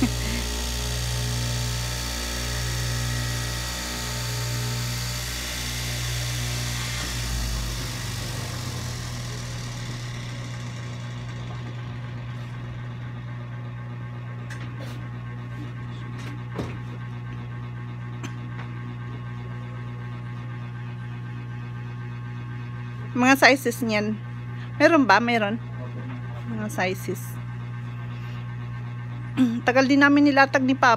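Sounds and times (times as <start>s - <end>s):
cutting machine motor hum: 0.0s - 23.4s.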